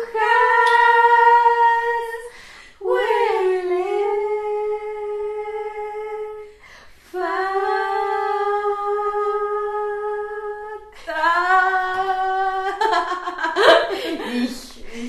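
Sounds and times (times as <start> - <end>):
singer breathing: 2.3 - 2.8.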